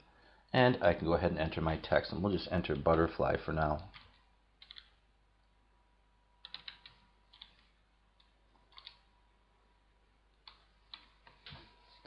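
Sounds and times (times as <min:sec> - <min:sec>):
faint keyboard typing: 0:02.6 - 0:05.6, 0:06.4 - 0:09.1, 0:10.3 - 0:12.0.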